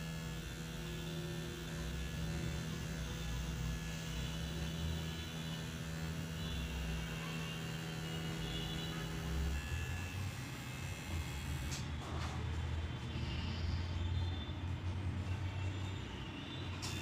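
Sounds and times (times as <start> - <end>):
tattoo machine buzzing: 0.0 - 11.9, 16.7 - 17.0.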